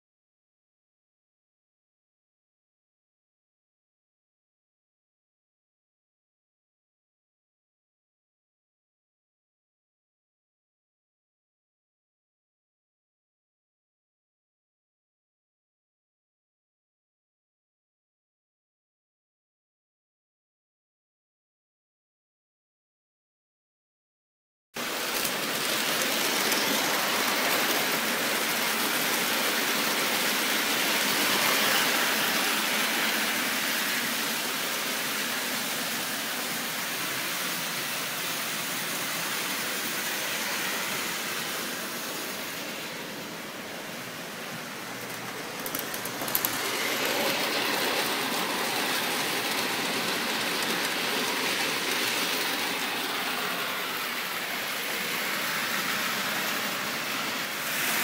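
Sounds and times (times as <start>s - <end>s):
toy trains whirring rumble: 24.8s - 58.0s.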